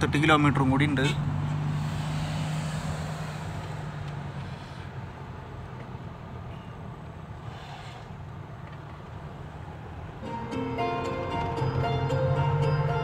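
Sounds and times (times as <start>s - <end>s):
vehicle engine and tyres droning: 0.0s - 13.0s.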